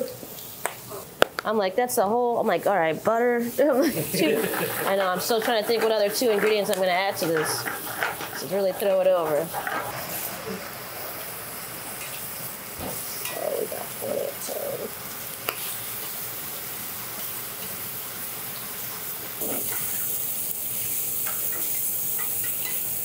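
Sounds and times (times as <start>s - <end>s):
chicken sizzling in a frying pan: 3.3s - 23.0s
metal tongs clicking on pan: 13.2s - 13.5s.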